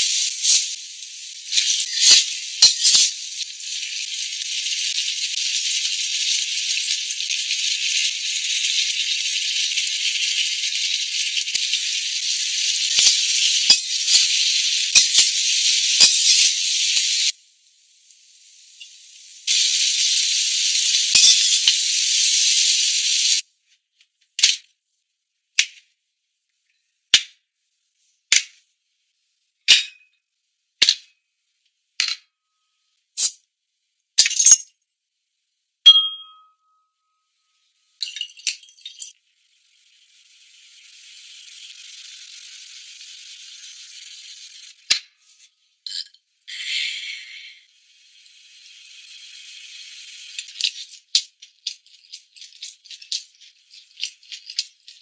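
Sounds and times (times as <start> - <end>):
oil sizzling in a wok: 0.0 - 23.6, 37.6 - 55.0.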